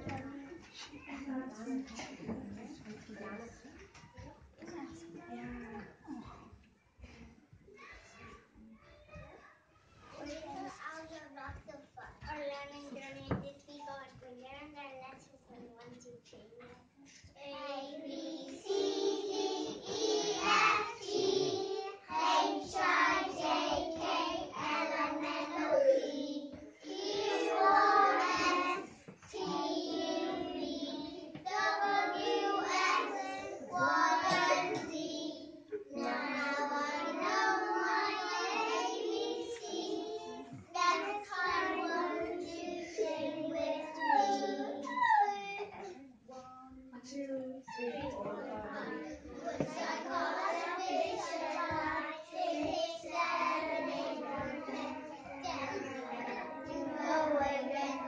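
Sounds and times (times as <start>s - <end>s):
children singing together: 17.7s - 45.9s, 47.7s - 58.0s.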